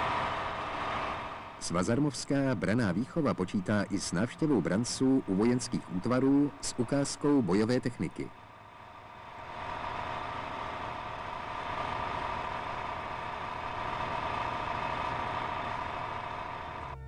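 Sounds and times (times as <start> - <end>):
heavy vehicle engine drone: 0.0 - 17.0.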